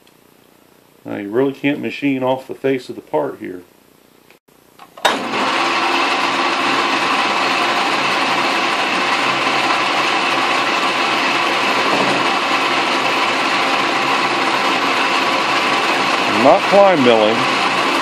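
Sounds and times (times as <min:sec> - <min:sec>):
lathe switching on: 0:04.8 - 0:18.0
lathe motor running: 0:05.1 - 0:18.0.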